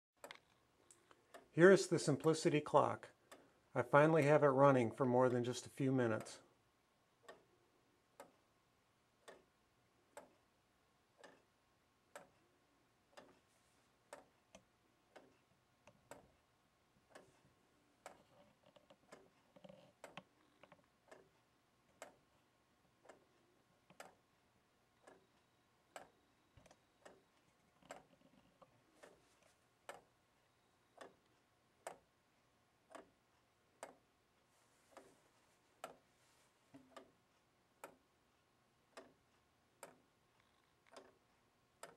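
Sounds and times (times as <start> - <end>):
wooden clock ticking softly: 0.2 - 6.5, 7.2 - 8.5, 9.2 - 10.5, 11.1 - 41.9.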